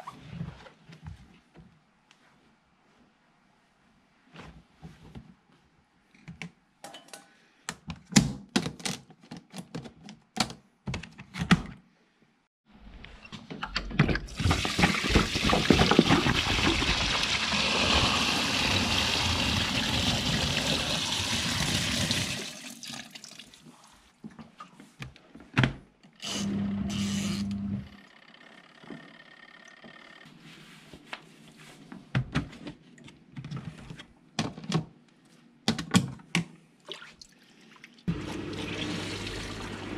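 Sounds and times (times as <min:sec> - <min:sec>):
water gushing into tub: 0:14.3 - 0:23.6, 0:38.1 - 0:39.9.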